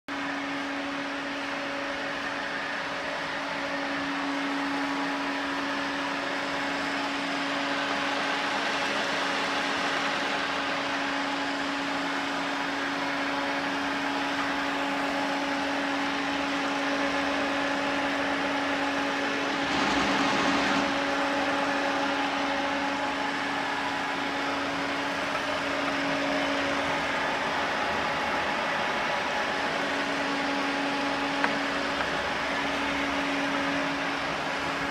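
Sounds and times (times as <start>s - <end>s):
steady machine hum: 0.1s - 34.9s
hiss: 19.4s - 22.2s
burst of noise: 19.4s - 23.4s.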